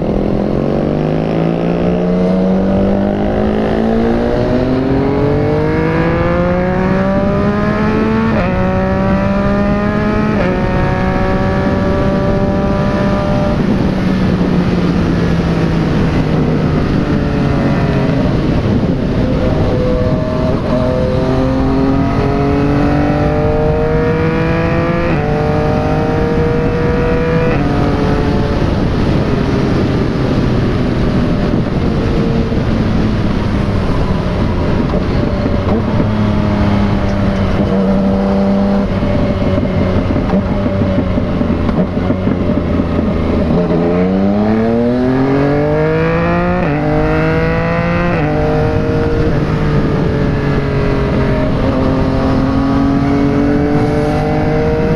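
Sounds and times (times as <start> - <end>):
motorcycle engine accelerating: 0.0 - 54.9
wind noise on microphone: 0.0 - 54.9.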